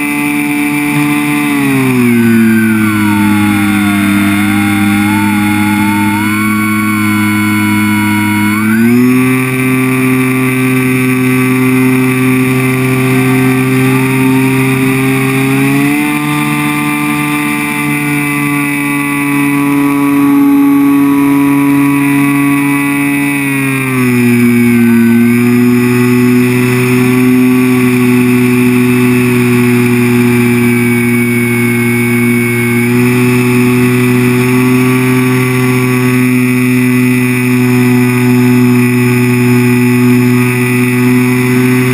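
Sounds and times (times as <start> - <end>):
muffled model plane motor whining: 0.0 - 41.9.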